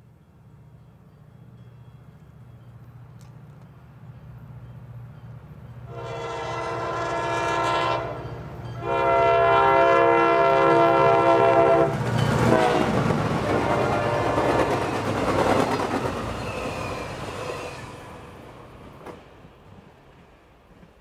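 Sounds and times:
train wheels rushing past: 0.4 - 21.0
locomotive air horn blasts: 5.9 - 14.8.

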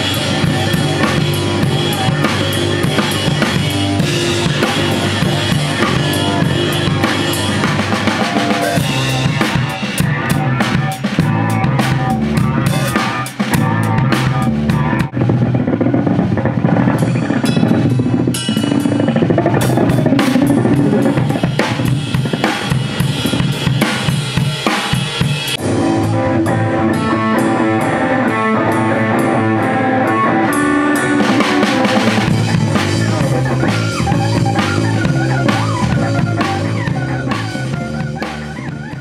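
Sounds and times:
electric bass guitar notes: 0.0 - 24.6, 25.4 - 39.0
drum kit hit hard: 0.0 - 26.2.

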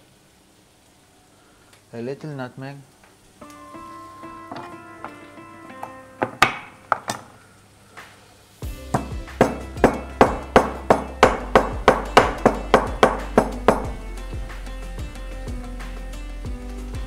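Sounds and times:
background music: 3.4 - 7.1, 8.6 - 17.0
pestle pounding in stone mortar: 8.7 - 14.0.

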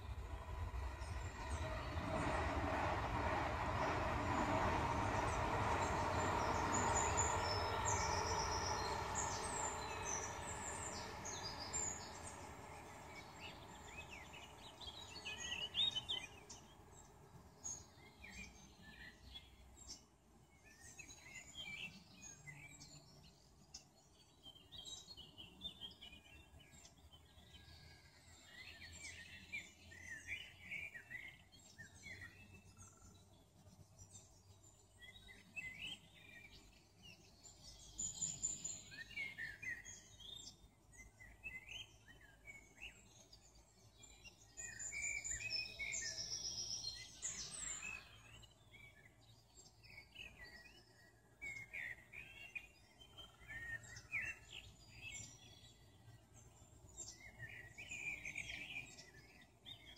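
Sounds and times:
loud rumble: 0.0 - 13.8
songbirds chirping: 0.0 - 59.9.

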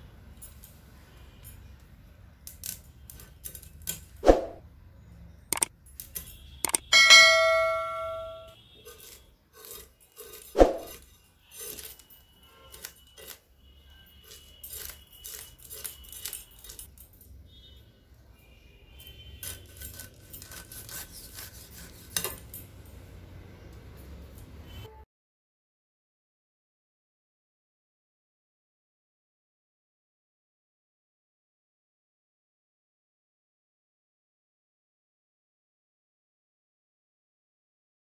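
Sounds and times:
metallic ringing of utensils: 6.0 - 13.4
knife scraping fish: 8.8 - 16.8, 19.4 - 22.6.

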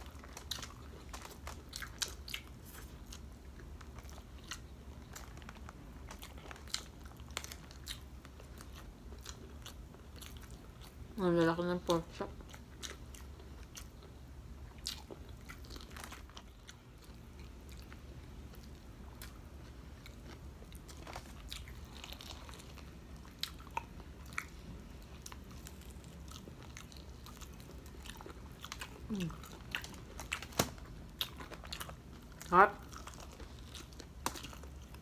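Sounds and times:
crisp crunching and chewing: 0.0 - 35.0.

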